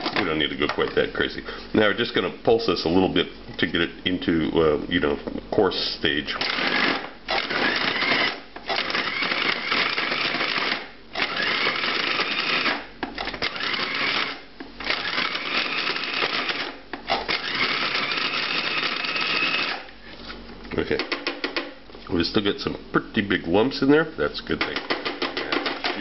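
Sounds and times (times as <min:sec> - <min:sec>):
food processor motor whirring: 0:06.4 - 0:19.9.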